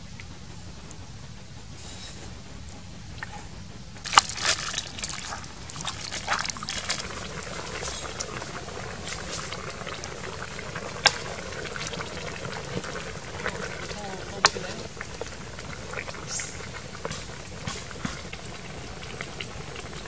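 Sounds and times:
soup bubbling in wok: 0:04.0 - 0:20.0.

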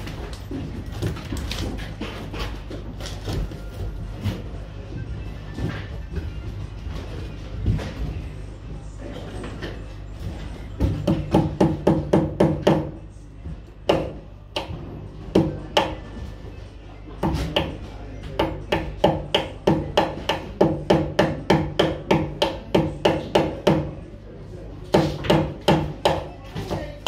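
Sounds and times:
hammer striking wood: 0:10.8 - 0:13.0, 0:13.8 - 0:16.0, 0:18.4 - 0:24.0, 0:24.9 - 0:26.3.

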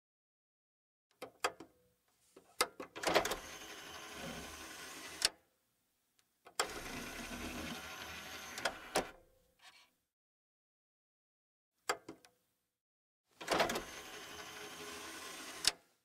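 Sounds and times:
disc tray motor running: 0:03.3 - 0:05.2, 0:06.6 - 0:09.1, 0:13.6 - 0:15.7.

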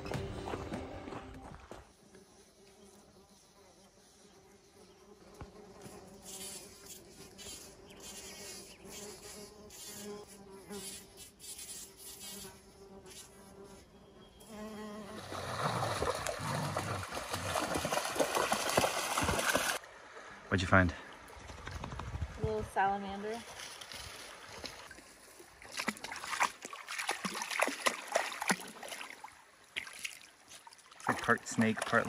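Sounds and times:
bumblebee buzzing: 0:01.9 - 0:17.6
dog splashing through water: 0:15.2 - 0:19.8, 0:25.6 - 0:32.0
creek water rushing: 0:15.2 - 0:21.3.

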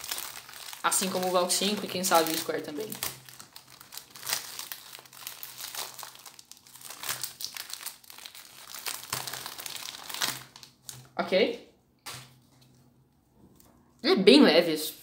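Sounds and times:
plastic wrap crinkling: 0:00.0 - 0:11.2.

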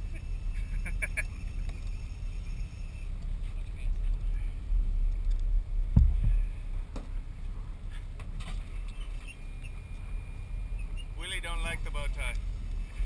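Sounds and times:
boat engine rumble: 0:00.0 - 0:13.0
heavy thumps: 0:05.9 - 0:07.1.

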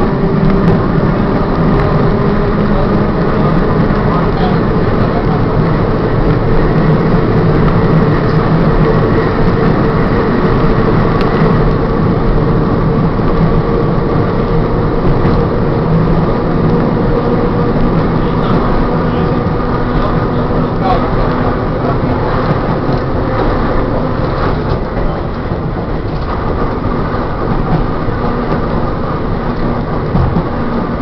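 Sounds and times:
wheels rumbling on rails: 0:00.0 - 0:31.0.

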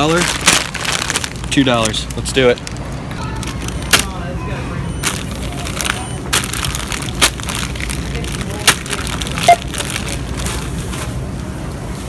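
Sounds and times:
candy wrapper crinkling: 0:00.0 - 0:04.1, 0:05.0 - 0:10.8
plastic bag crinkling: 0:00.0 - 0:04.1, 0:05.0 - 0:10.9
store background hum: 0:00.0 - 0:12.0
checkout scanner beep: 0:03.2 - 0:07.3, 0:09.2 - 0:10.2.

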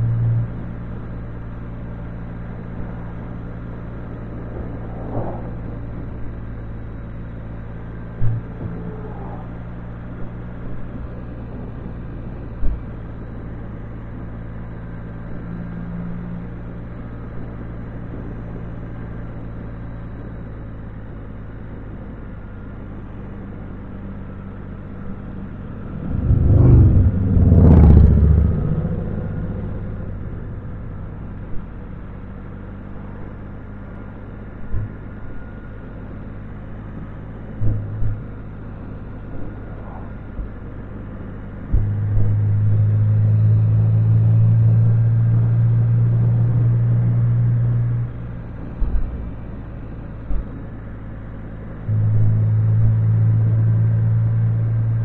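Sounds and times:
wind and road noise: 0:00.0 - 0:55.0
loud rushing swell: 0:04.1 - 0:06.7, 0:25.3 - 0:32.1
motorcycle engine cruising: 0:24.7 - 0:33.0.

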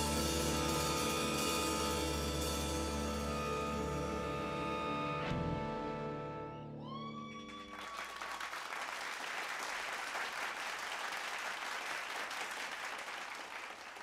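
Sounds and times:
audience applauding: 0:07.3 - 0:14.0.

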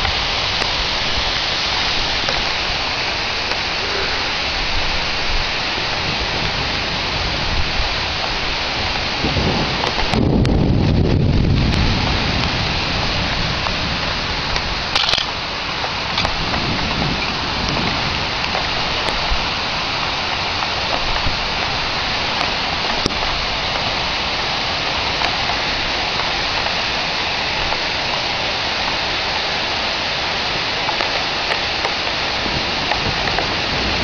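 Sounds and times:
heavy rain hiss: 0:00.0 - 0:34.0
rain drop ticks: 0:02.2 - 0:03.8, 0:09.7 - 0:13.8, 0:14.4 - 0:24.1, 0:24.8 - 0:29.6, 0:30.3 - 0:33.6.

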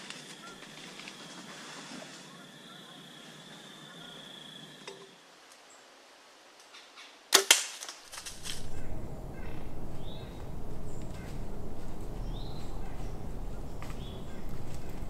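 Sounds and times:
bow and arrow crack: 0:07.3 - 0:09.5
low rumbling noise: 0:08.1 - 0:15.0.

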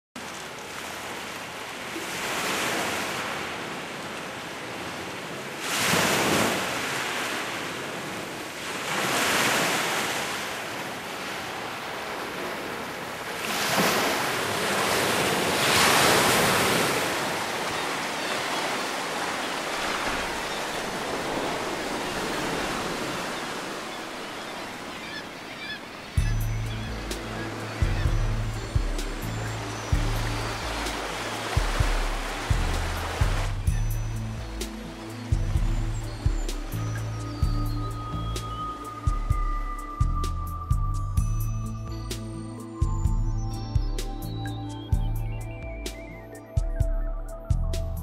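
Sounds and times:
waves washing on pebble beach: 0:11.6 - 0:23.8.

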